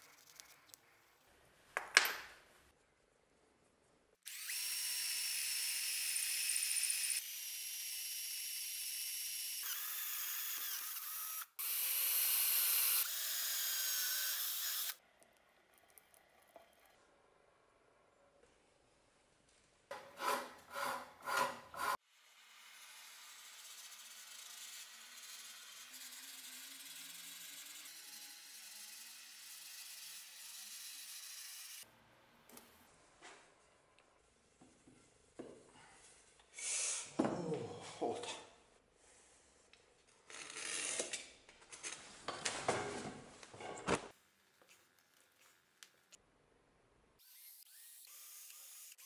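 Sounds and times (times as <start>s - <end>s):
hand file scraping: 19.9s - 22.0s.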